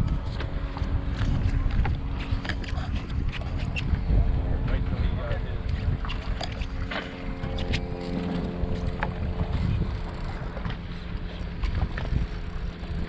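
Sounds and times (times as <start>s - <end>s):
water against boat hull: 0.0s - 13.0s
wind buffeting microphone: 0.0s - 13.0s
steady multi-tone whine: 3.3s - 13.0s.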